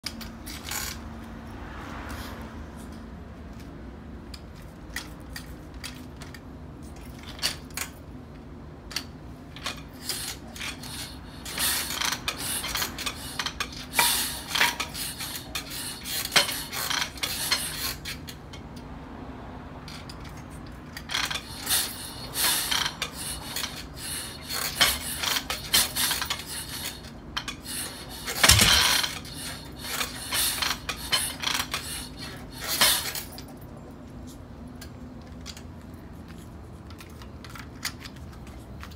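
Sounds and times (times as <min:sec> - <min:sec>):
kick-start metallic clanks: 0:21.0 - 0:33.4.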